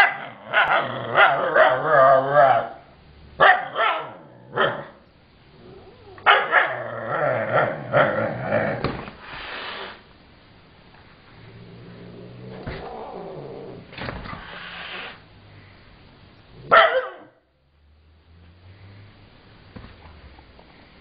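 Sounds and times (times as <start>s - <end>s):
dog barking: 0.0s - 2.8s, 3.4s - 5.0s, 6.2s - 6.8s, 16.7s - 17.4s
cat growling low: 0.2s - 2.8s, 4.2s - 8.8s, 11.4s - 15.2s
cat hissing: 9.2s - 10.1s, 11.8s - 15.3s.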